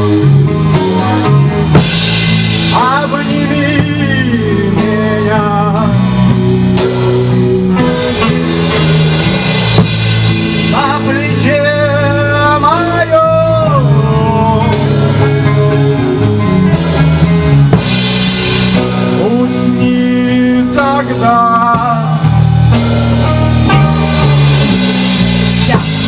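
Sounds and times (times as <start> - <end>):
rock band playing: 0.0 - 26.0
man singing: 2.6 - 8.7, 10.5 - 16.4, 19.0 - 22.5.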